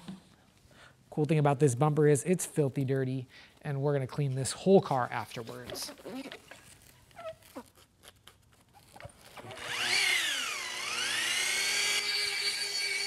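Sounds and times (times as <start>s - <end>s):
handheld power polisher whining: 8.9s - 13.0s.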